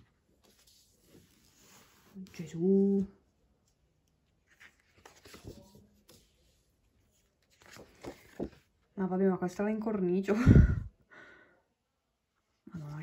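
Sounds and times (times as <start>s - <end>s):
postcards rustling and sliding: 0.1s - 3.1s, 3.7s - 8.9s.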